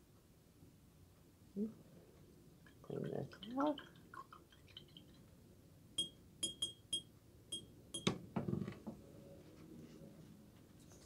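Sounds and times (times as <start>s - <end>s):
brush clinking on glass jar: 6.0s - 7.7s.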